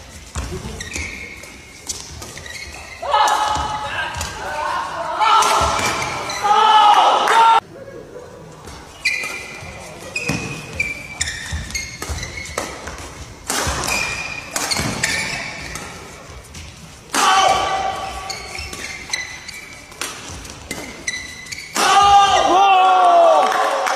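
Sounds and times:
shoes squeaking on court floor: 0.0 - 4.5, 5.5 - 6.7, 8.6 - 22.4
racket hitting shuttlecock: 9.1 - 22.4.

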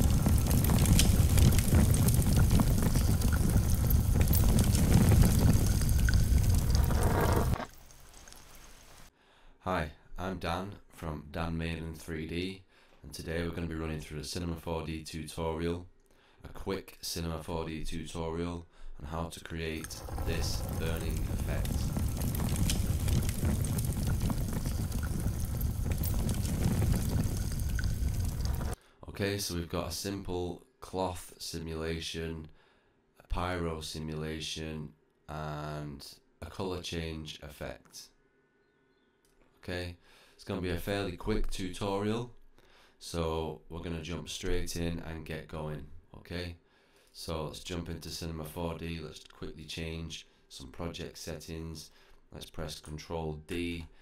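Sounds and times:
flames roaring: 0.0 - 7.7, 19.8 - 28.8
fire crackling: 0.0 - 9.1, 19.8 - 28.8.

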